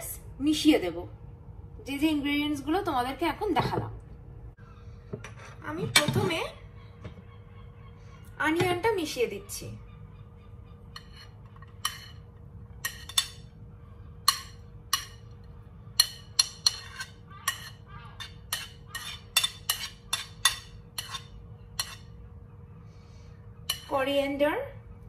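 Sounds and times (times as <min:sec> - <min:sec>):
faint steady hum: 0:00.0 - 0:25.0
metal spoon clinking on ceramic plates: 0:10.9 - 0:13.5, 0:14.2 - 0:15.4, 0:16.0 - 0:22.2, 0:23.7 - 0:23.9.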